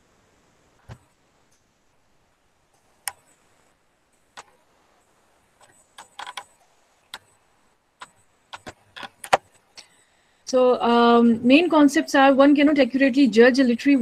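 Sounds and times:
computer mouse clicking: 0:02.8 - 0:03.4, 0:04.3 - 0:04.6, 0:05.6 - 0:07.4, 0:08.0 - 0:09.9.

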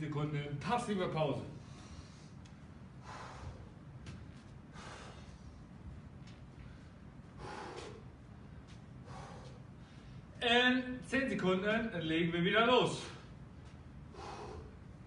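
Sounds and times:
man breathing hard: 0:01.5 - 0:05.9, 0:06.6 - 0:10.4, 0:14.0 - 0:15.0.

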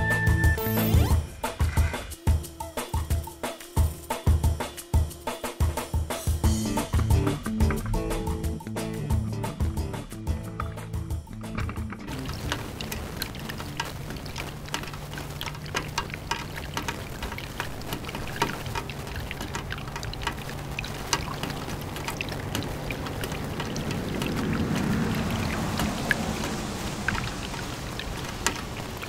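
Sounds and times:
rain falling: 0:06.3 - 0:29.0
raindrops striking close by: 0:06.3 - 0:29.0.

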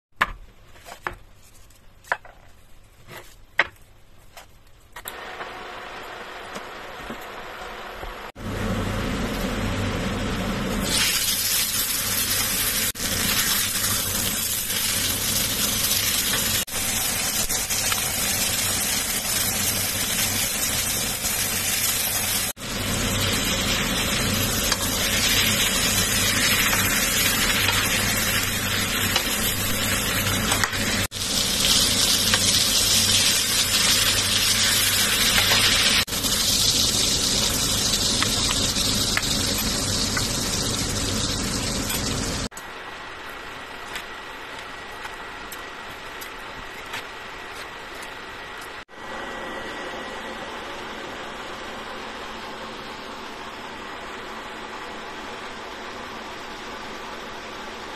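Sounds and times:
steak sizzling in a skillet: 0:10.8 - 0:42.5.

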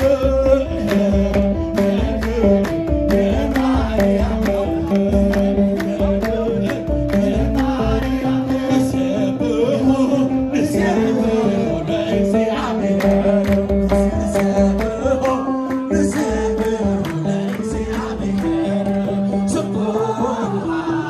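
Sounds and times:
hand clapping: 0:00.0 - 0:08.8, 0:12.7 - 0:19.3
hand drums beating: 0:00.0 - 0:09.6, 0:10.8 - 0:19.8
group of men singing: 0:00.0 - 0:21.0.

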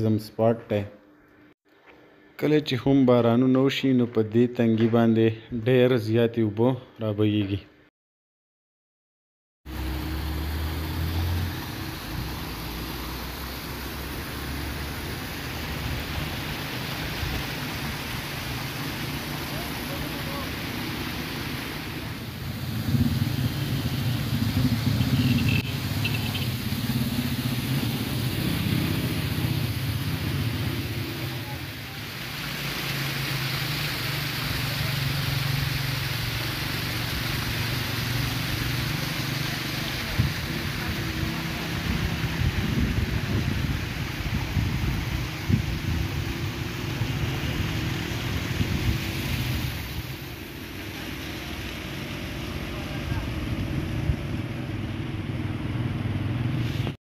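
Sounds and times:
traffic engines passing: 0:09.7 - 0:57.0
wind buffeting microphone: 0:41.9 - 0:46.2.

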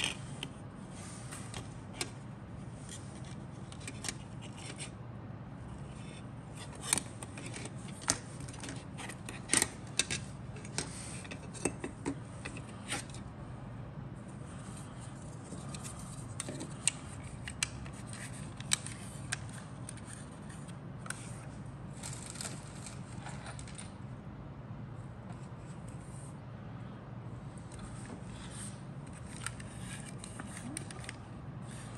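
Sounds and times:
steady low hum: 0:00.0 - 0:31.9
plastic parts clicking and tapping: 0:06.7 - 0:13.2.

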